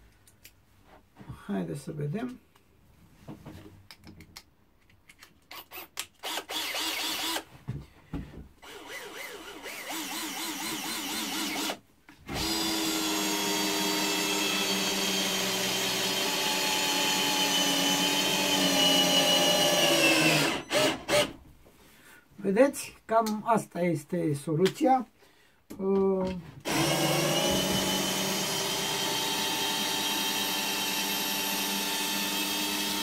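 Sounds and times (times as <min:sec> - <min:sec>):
cordless drill driving screw into wood: 0:05.5 - 0:07.5, 0:08.6 - 0:21.4, 0:26.6 - 0:33.0.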